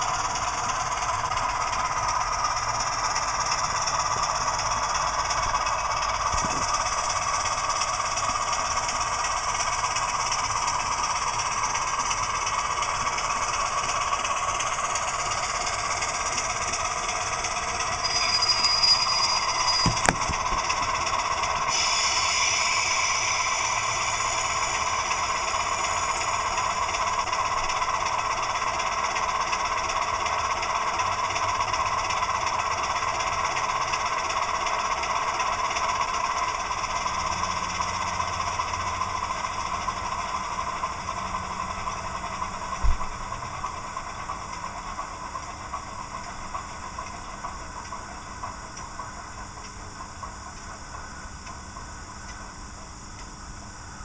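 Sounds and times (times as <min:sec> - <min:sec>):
model diesel engine idling sound: 0:00.0 - 0:54.0.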